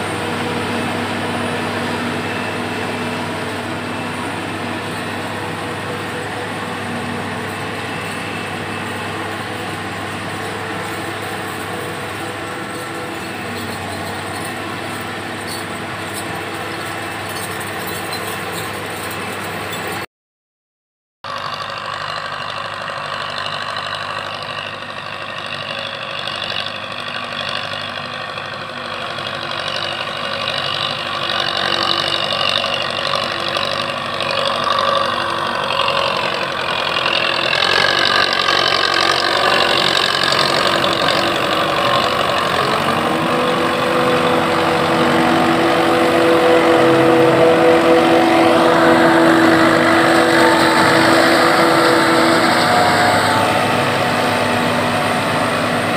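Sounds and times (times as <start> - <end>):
steady droning whine: 0.0 - 19.9, 29.2 - 55.9
tractor engine running: 0.0 - 20.1, 21.2 - 55.9.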